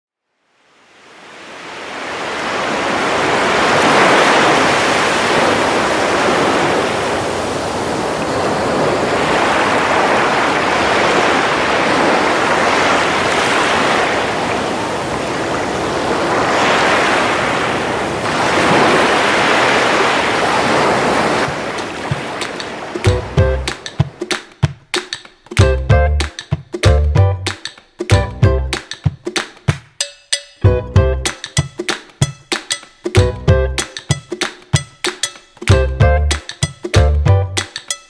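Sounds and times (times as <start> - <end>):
ocean waves washing in: 0.4 - 24.6.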